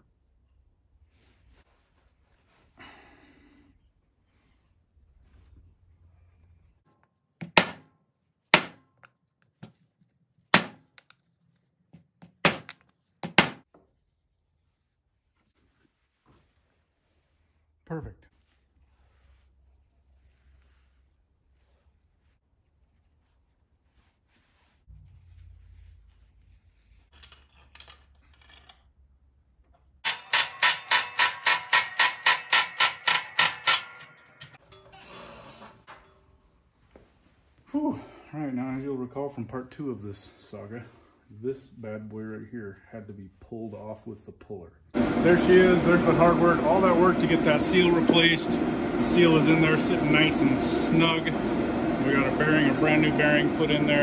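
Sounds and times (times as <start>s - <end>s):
hydraulic jack metallic clanks: 30.0s - 35.0s.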